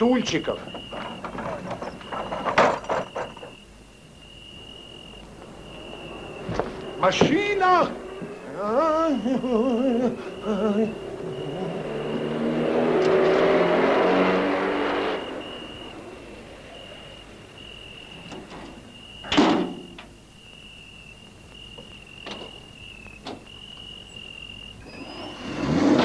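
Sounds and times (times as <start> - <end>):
crickets chirping: 0.0 - 26.0
truck engine revving: 5.0 - 19.2, 24.8 - 26.0.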